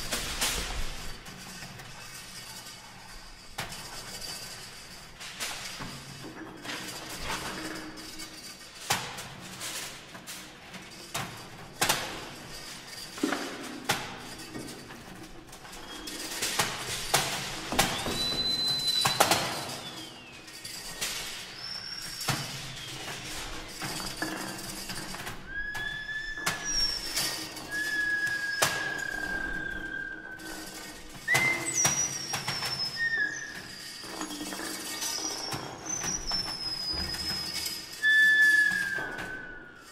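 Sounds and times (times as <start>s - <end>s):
high whistle-like tones: 17.8s - 23.6s, 25.4s - 39.9s.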